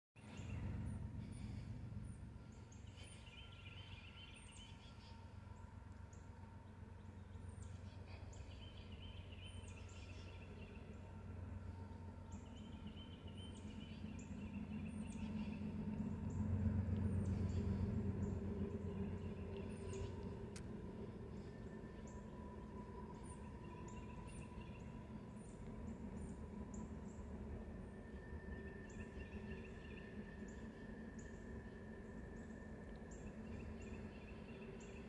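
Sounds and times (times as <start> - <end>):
low rumble: 0.2 - 35.0
woodland birds chirping and trilling: 0.2 - 35.0.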